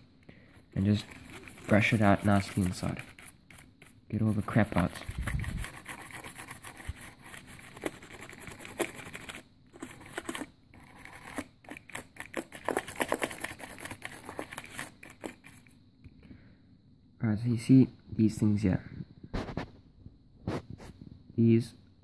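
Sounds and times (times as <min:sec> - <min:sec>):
brush scrubbing keyboard: 0:00.0 - 0:15.7.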